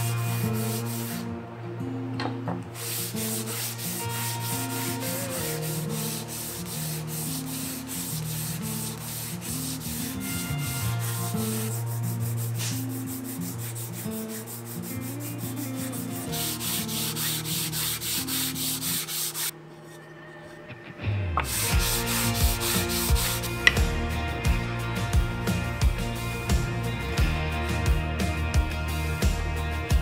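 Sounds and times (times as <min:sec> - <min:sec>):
sandpaper rasping on wood: 0:00.0 - 0:01.2, 0:02.8 - 0:19.5, 0:21.4 - 0:24.0
background music: 0:00.0 - 0:30.0.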